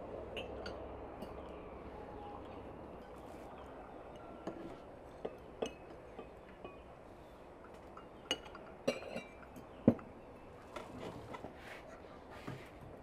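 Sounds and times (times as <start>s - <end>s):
tea glasses clinking: 5.2s - 6.8s, 7.7s - 10.0s.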